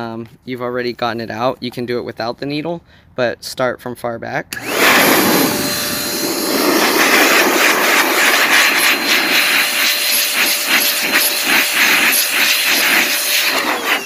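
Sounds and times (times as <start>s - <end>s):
air blower motor whining: 4.5s - 14.0s
rush of blown air: 4.6s - 14.0s.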